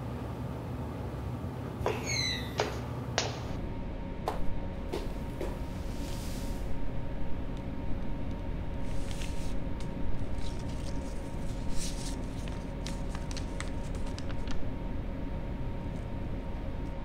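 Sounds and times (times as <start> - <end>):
background hiss and hum: 0.0 - 17.0
paper tearing and rustling: 8.8 - 14.6.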